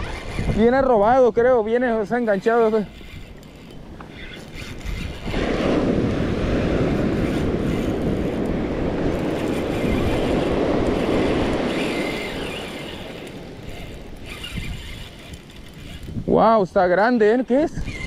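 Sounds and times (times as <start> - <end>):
surf washing up beach: 5.3 - 14.1.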